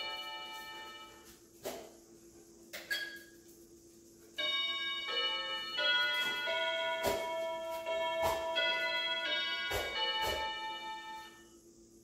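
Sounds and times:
electronic doorbell chime tune: 0.0s - 1.2s, 4.4s - 11.4s.

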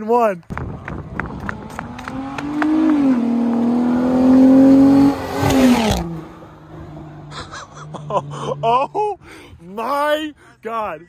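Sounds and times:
truck engine revving: 1.2s - 9.0s.

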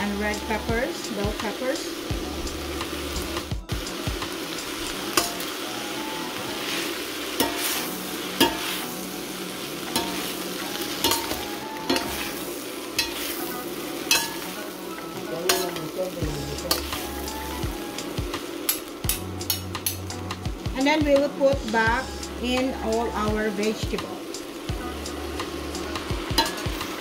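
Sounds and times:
noodles sizzling in a pan: 0.0s - 27.0s
metal utensils scraping a pan: 6.5s - 9.0s, 9.9s - 17.2s, 18.6s - 20.2s, 26.3s - 27.0s.

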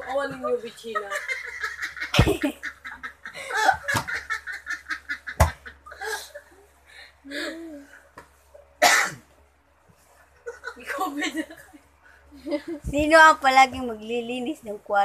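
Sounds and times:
man and woman laughing: 0.9s - 6.7s, 10.4s - 11.8s.

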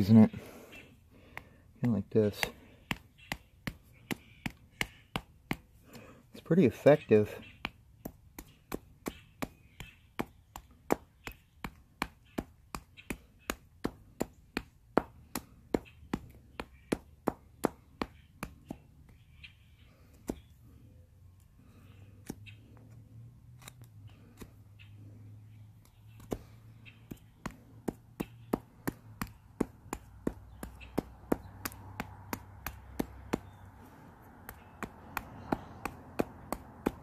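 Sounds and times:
stone hand axe chopping wood: 1.3s - 5.8s, 7.5s - 19.2s, 26.2s - 33.8s, 34.4s - 37.0s.

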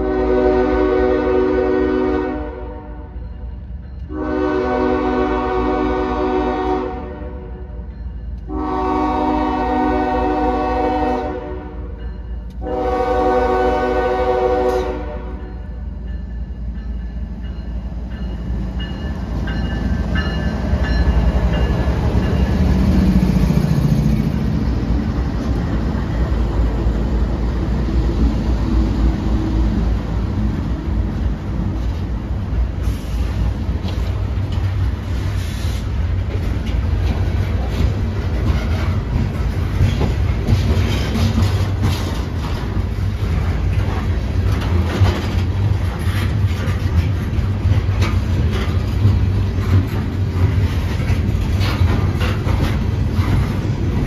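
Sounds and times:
locomotive horn blasts: 0.0s - 3.2s, 4.1s - 7.8s, 8.4s - 12.0s, 12.6s - 15.5s
train rumbling: 0.0s - 54.0s.

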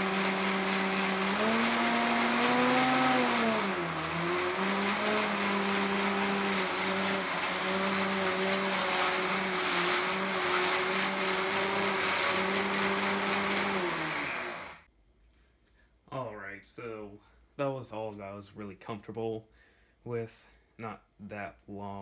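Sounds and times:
robot drive motors: 0.0s - 14.8s
robot spinning weapon whine: 0.0s - 14.8s.

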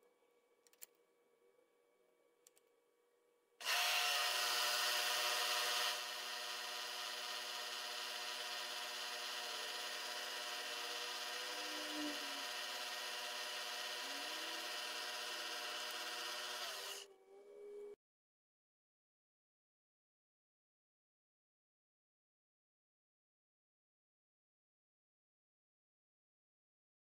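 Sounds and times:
drill working into brass: 3.6s - 17.1s
milling machine spindle whine: 3.6s - 17.1s.

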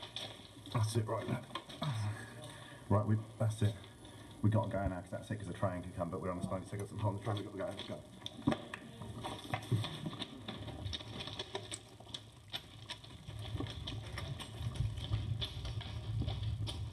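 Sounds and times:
footsteps on gravel ballast: 6.5s - 16.9s.

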